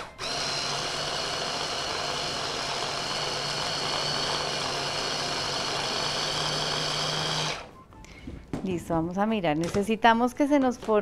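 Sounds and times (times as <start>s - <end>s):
electric chopper motor whining: 0.0s - 7.7s.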